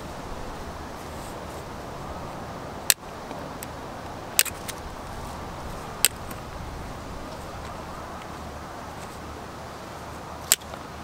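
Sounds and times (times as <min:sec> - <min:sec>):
bolt cutters snapping wire: 0:04.4 - 0:04.8, 0:10.5 - 0:10.8.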